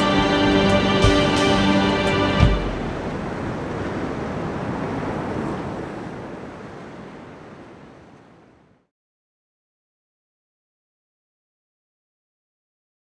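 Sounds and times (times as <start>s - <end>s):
rough sea surf: 0.0s - 8.9s
wind: 0.0s - 8.9s.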